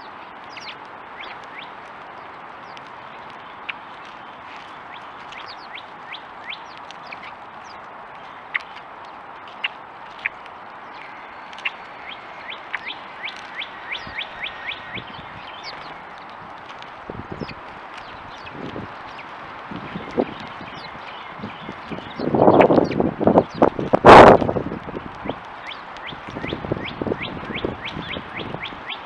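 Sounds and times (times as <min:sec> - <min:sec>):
background hiss: 0:00.0 - 0:29.0
sparrows chirping: 0:00.0 - 0:29.0.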